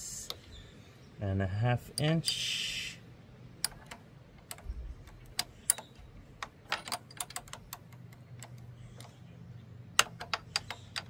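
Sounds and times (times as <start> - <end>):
wrenches clicking on bolts: 3.6 - 9.2, 10.0 - 11.0.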